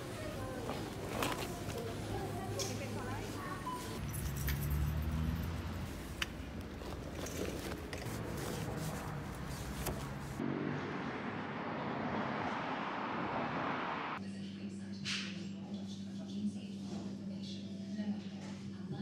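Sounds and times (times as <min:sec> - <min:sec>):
road traffic rumble: 0:00.0 - 0:14.2
vehicle passing: 0:03.0 - 0:14.2.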